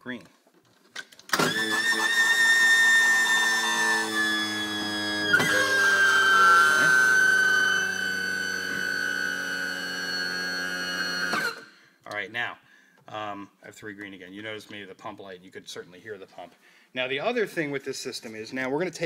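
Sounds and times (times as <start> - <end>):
electric pump whining: 1.3 - 11.8.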